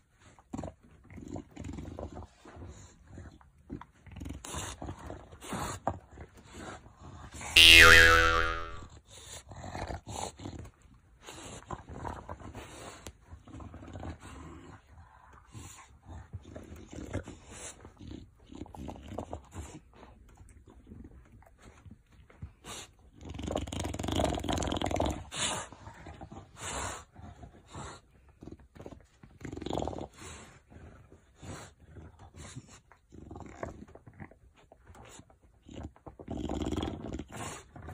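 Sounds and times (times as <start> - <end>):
electronic sound effect: 7.6 - 8.8.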